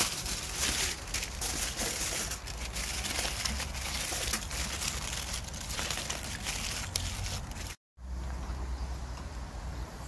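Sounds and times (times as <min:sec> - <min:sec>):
aluminium foil crinkling: 0:00.0 - 0:07.8.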